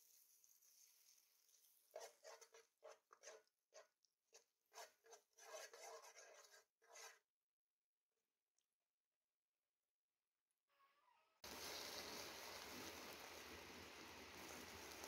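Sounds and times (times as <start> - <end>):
fat sizzling in frying pan: 0.0 - 3.4, 11.4 - 15.0.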